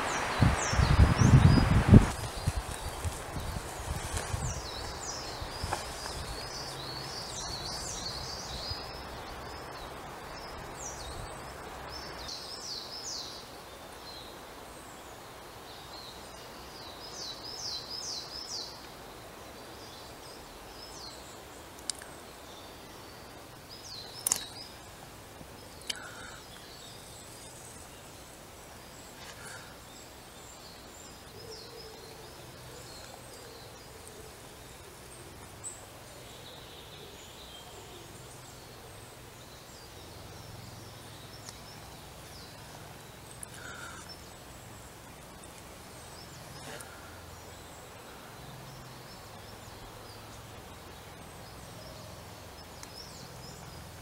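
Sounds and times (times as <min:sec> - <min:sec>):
outdoor background noise: 0:00.0 - 0:54.0
songbirds chirping: 0:00.0 - 0:54.0
sharp clicks: 0:24.2 - 0:24.6.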